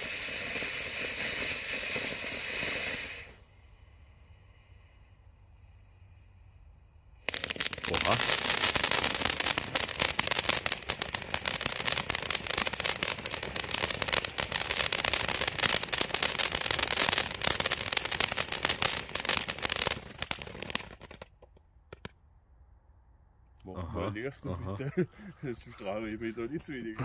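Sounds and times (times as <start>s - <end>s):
firework sparks hissing: 0.0s - 21.3s
firework popping: 0.0s - 22.2s.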